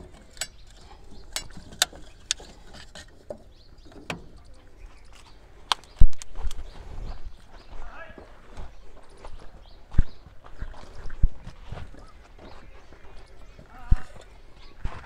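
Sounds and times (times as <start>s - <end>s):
light metal clicks and clinks: 0.0s - 6.3s.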